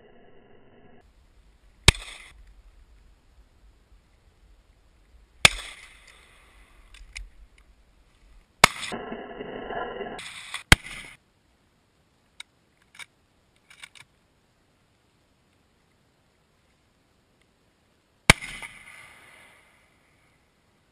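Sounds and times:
noisy rush: 0.0 - 10.6
gunshots: 1.8 - 2.4, 5.4 - 6.8, 8.6 - 11.2, 18.3 - 19.4
faint clicks: 5.0 - 9.0.

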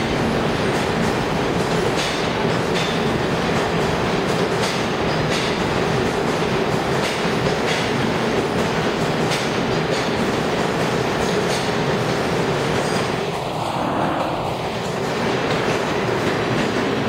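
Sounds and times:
wheels clacking over rail joints: 0.0 - 13.1
steel wheels rumbling on rails: 0.0 - 17.0.

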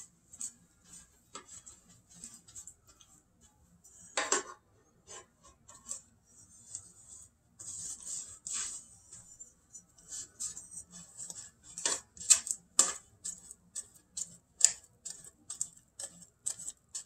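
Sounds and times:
pastry brush scraping baking pan: 0.0 - 17.0.

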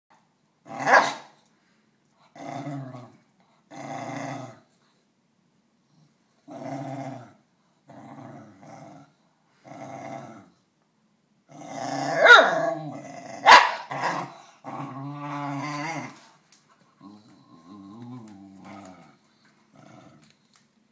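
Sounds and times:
dog growling: 2.3 - 4.7, 6.4 - 10.6, 11.5 - 16.4, 17.0 - 20.4.

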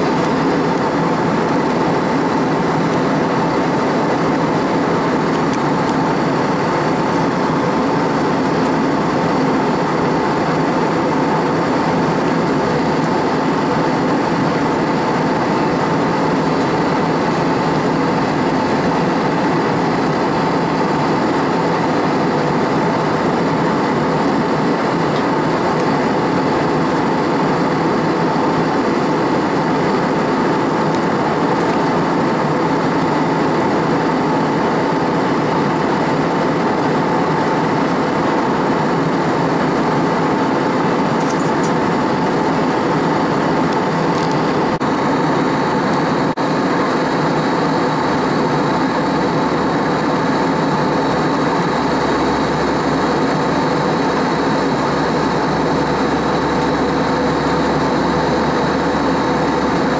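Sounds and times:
jet engines whirring: 0.0 - 59.9.

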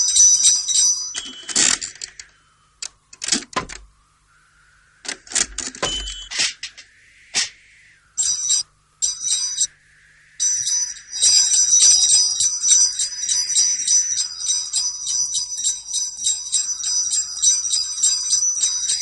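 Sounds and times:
sleigh bells jingling: 0.0 - 1.6, 8.2 - 9.7, 10.4 - 19.0
sharp clicks and knocks: 1.2 - 3.9.

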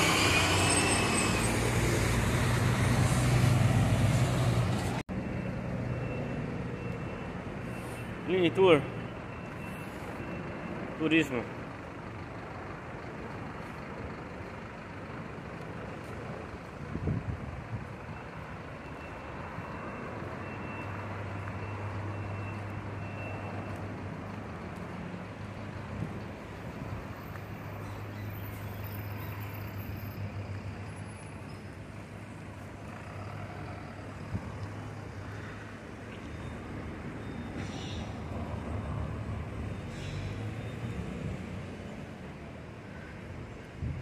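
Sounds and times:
bus engine humming: 0.0 - 44.0
traffic rumble: 0.0 - 44.0.

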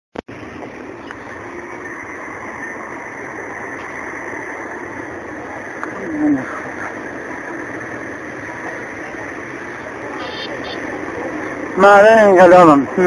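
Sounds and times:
city street traffic: 0.2 - 13.0.

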